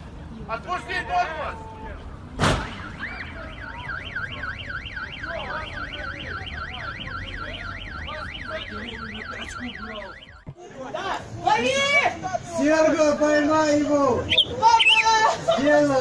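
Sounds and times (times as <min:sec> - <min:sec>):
car alarm warbling: 0:02.7 - 0:10.5, 0:14.2 - 0:15.0.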